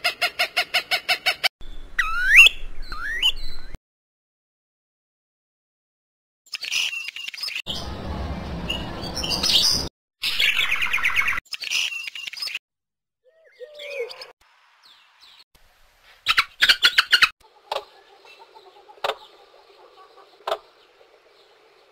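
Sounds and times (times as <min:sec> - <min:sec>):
recorded bird calls: 0:08.7 - 0:12.6, 0:13.2 - 0:15.4, 0:16.0 - 0:21.9.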